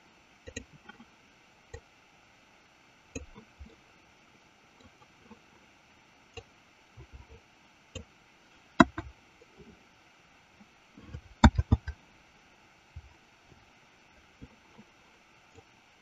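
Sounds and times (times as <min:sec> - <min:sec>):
keyboard and mouse clicking: 0:11.4 - 0:12.0.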